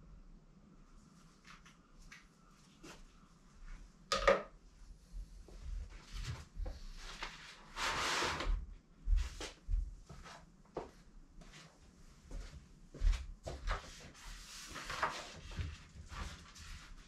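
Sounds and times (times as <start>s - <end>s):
soft thuds of footsteps: 9.0s - 14.0s
paper rustling: 14.5s - 16.9s.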